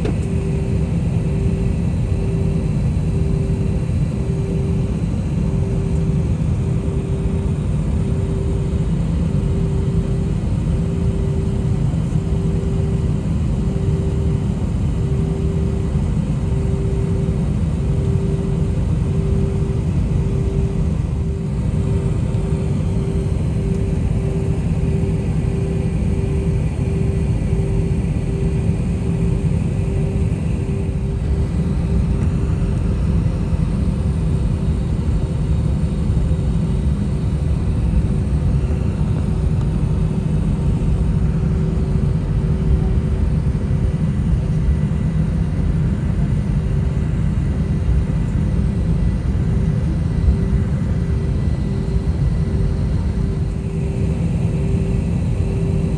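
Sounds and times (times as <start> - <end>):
jet engine cabin rumble: 0.0 - 55.9
pulsing hum: 0.0 - 55.9.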